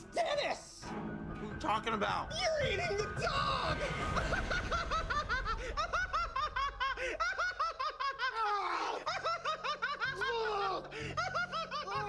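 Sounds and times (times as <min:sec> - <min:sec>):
people giggling: 0:03.8 - 0:12.0.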